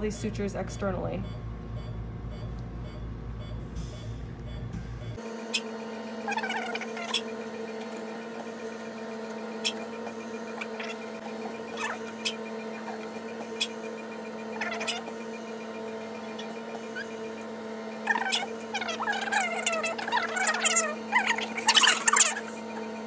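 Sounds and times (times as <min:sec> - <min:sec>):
electrical hum: 0:00.0 - 0:23.0
high clicks and chirps: 0:05.2 - 0:23.0.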